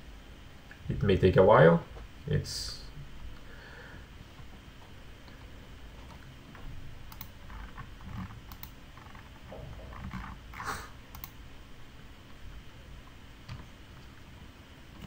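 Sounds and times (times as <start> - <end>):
faint clicks: 5.2 - 7.9, 8.5 - 9.3, 11.1 - 11.4.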